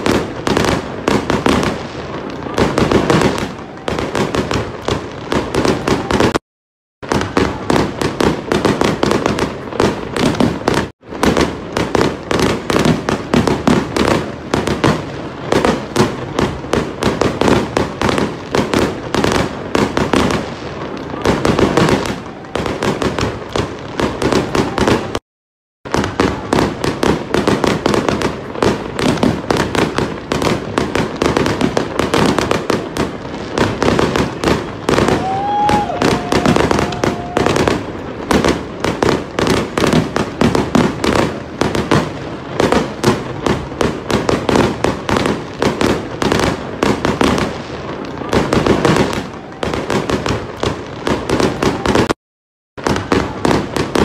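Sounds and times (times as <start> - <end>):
fireworks crackling and popping: 0.0 - 6.4, 7.0 - 25.2, 25.8 - 52.2, 52.8 - 54.0
firework whistle: 34.9 - 38.3.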